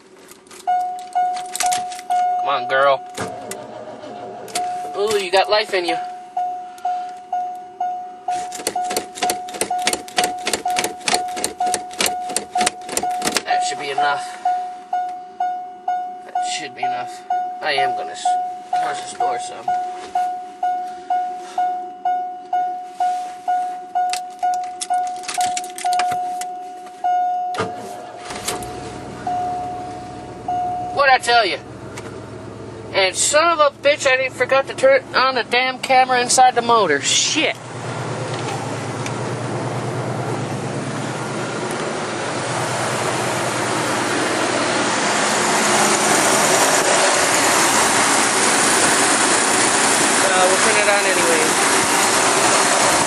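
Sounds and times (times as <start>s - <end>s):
keys jangling: 0.3s - 2.1s, 24.1s - 26.5s
car warning chime: 0.6s - 31.8s.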